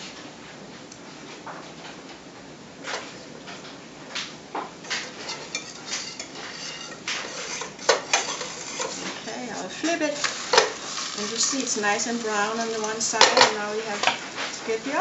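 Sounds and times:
metal spatula scraping skillet: 0:04.9 - 0:15.0.

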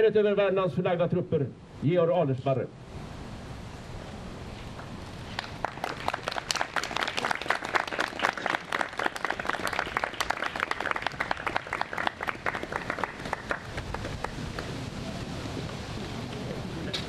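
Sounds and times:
audience applauding: 0:05.3 - 0:14.7.

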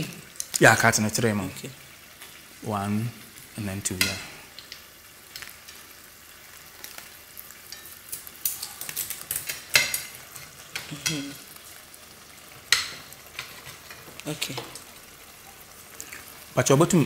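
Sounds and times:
faint steady hiss: 0:00.0 - 0:17.0
metal spoon stirring a pot: 0:07.6 - 0:11.2, 0:12.6 - 0:14.7.

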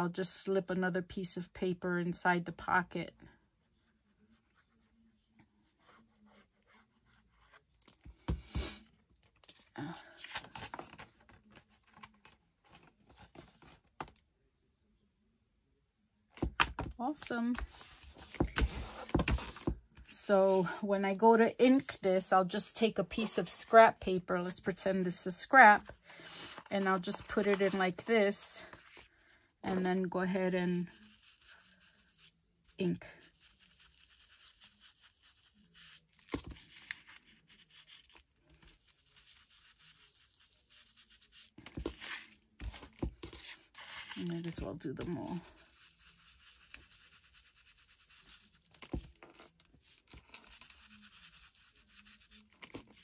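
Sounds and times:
paper rustling: 0:09.4 - 0:14.1
foam pad brushing on paper: 0:30.3 - 0:48.9, 0:49.8 - 0:53.0.

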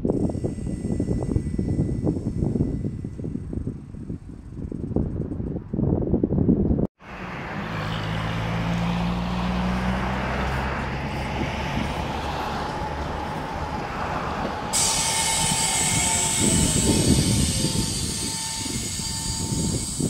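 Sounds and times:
high steady whine: 0:00.0 - 0:04.9, 0:10.0 - 0:20.0
trolleybus hum with road noise: 0:00.0 - 0:20.0
bright hiss: 0:14.7 - 0:20.0.

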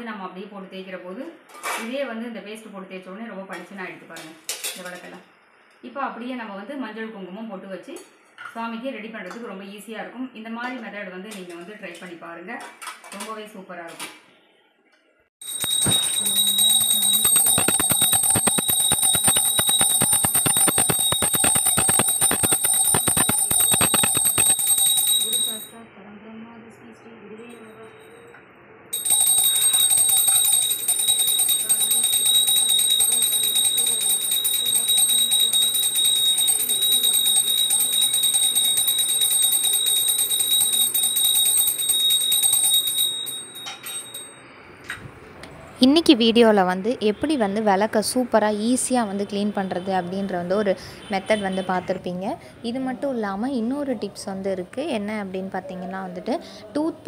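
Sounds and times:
small hand bell ringing fast: 0:15.4 - 0:25.7, 0:29.0 - 0:44.5.

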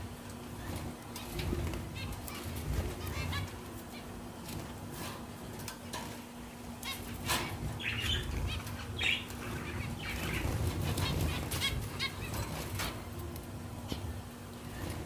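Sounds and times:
wings fluttering: 0:00.0 - 0:15.0
finches calling: 0:06.8 - 0:12.7.

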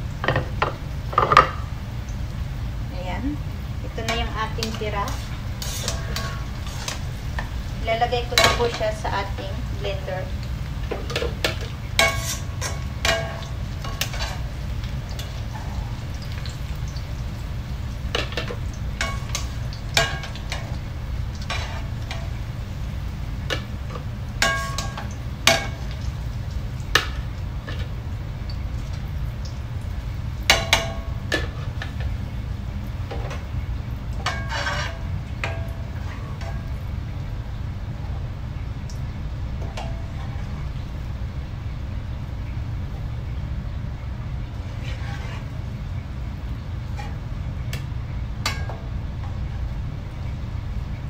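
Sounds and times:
steady low hum: 0:00.0 - 0:51.0
metal utensils clinking on a wok: 0:04.0 - 0:07.0, 0:11.1 - 0:14.4, 0:24.4 - 0:25.9, 0:34.2 - 0:36.7.

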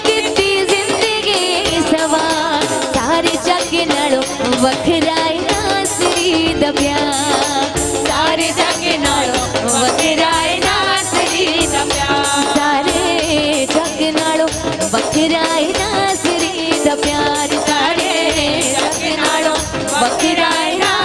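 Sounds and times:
hand drum: 0:00.0 - 0:21.0
steady percussion beat: 0:00.0 - 0:21.0
woman singing into microphone: 0:00.0 - 0:21.0
backing chorus singing: 0:08.2 - 0:13.1, 0:17.6 - 0:21.0.

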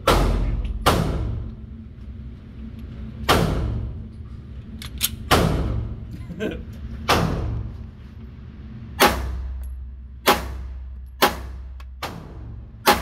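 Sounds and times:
ventilation hum: 0:00.0 - 0:13.0
pistol metallic clicks: 0:04.8 - 0:05.3.

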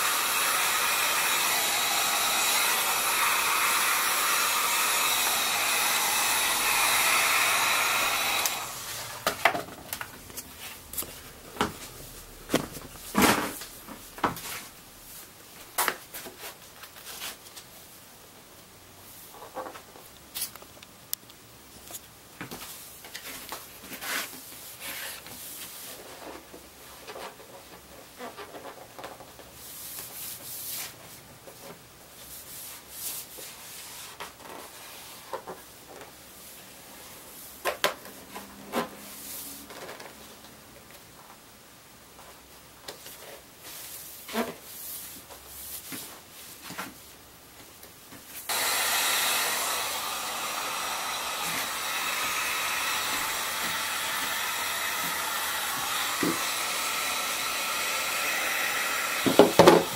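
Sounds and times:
heat gun blowing: 0:00.0 - 0:09.5, 0:48.5 - 0:59.9.

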